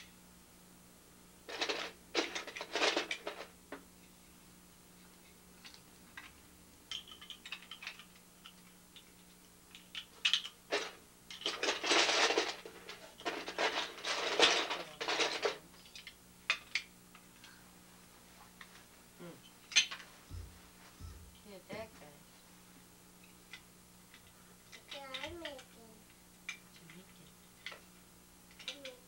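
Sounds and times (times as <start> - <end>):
faint steady hum: 0.0 - 29.0
rattling of rummaged plastic pieces: 1.5 - 3.5, 10.2 - 16.8
plastic bricks clicking and clattering: 6.9 - 16.8, 28.5 - 29.0.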